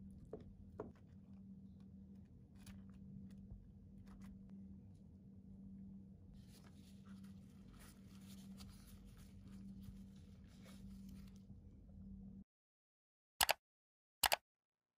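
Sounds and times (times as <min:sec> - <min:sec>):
steady low hum: 0:00.0 - 0:12.4
flatbread rustling: 0:06.4 - 0:11.5.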